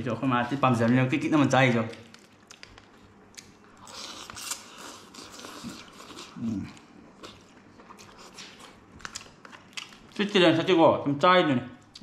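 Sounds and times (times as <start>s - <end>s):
chewing: 1.9s - 10.2s.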